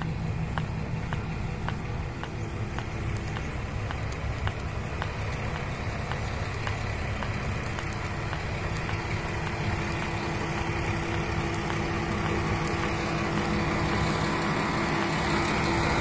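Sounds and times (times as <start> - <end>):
railcar droning past: 0.0 - 16.0.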